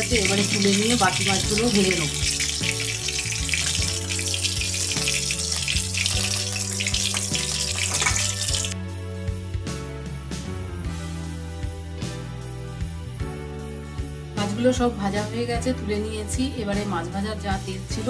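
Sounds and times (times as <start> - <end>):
fish sizzling in oil: 0.0 - 8.8
background music: 0.0 - 18.0.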